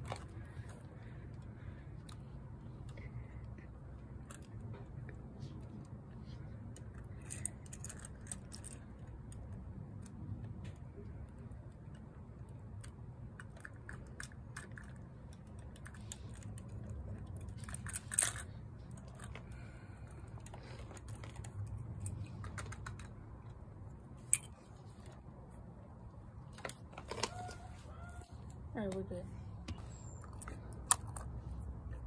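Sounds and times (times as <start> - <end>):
low steady rumble: 0.0 - 32.0
toy truck clicks and taps: 21.1 - 23.2, 30.3 - 31.3.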